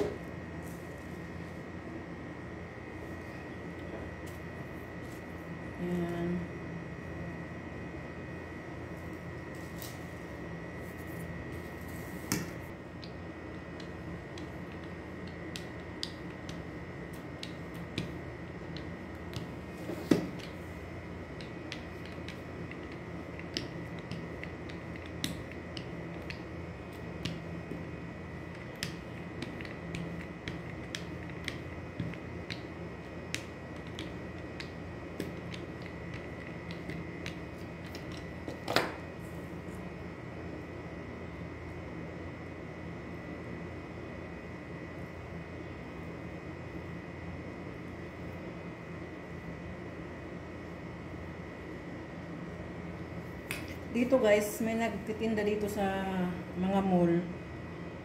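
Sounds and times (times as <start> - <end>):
steady background hum: 0.0 - 58.0.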